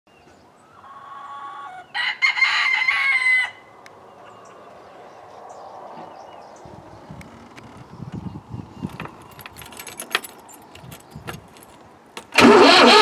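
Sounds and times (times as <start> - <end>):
rooster crowing: 0.8 - 3.8.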